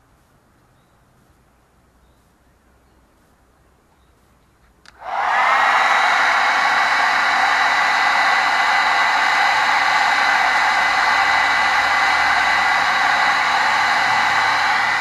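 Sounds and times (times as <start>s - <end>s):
hairdryer running: 5.0s - 15.0s.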